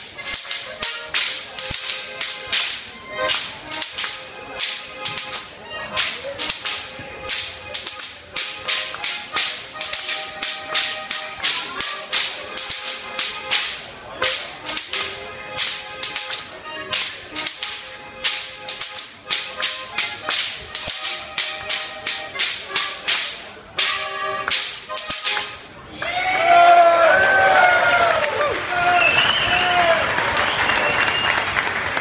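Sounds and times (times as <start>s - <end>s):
band music: 0.0s - 25.9s
whip cracks: 0.2s - 25.5s.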